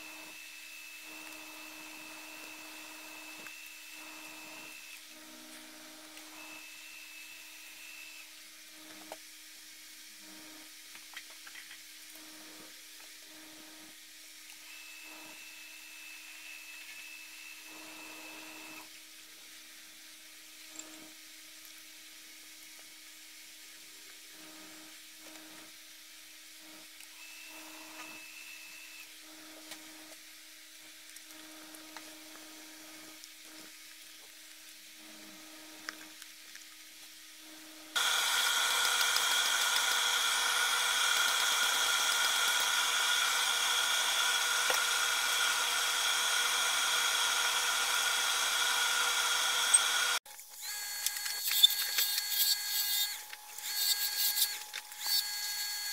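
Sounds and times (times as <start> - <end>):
wood lathe spinning: 0.0 - 8.2, 14.7 - 18.8, 38.0 - 55.9
loud machine hum with steady tones: 0.0 - 9.3, 12.2 - 19.0, 37.4 - 55.9.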